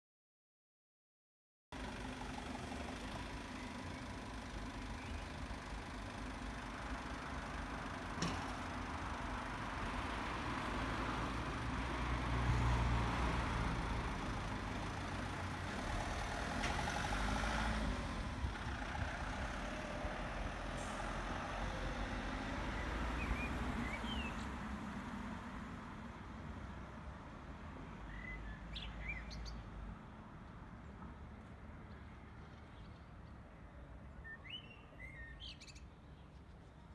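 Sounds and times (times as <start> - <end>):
van engine driving off: 1.8 - 24.3
bird chirps: 22.8 - 24.5, 28.1 - 29.7, 34.2 - 36.7.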